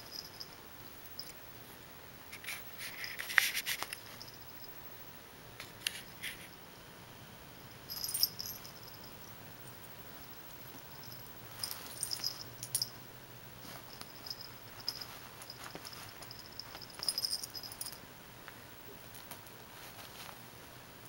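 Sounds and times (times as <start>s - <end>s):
cat collar bell jingling: 0.0s - 1.4s, 7.8s - 9.4s, 10.3s - 13.0s, 13.6s - 18.0s.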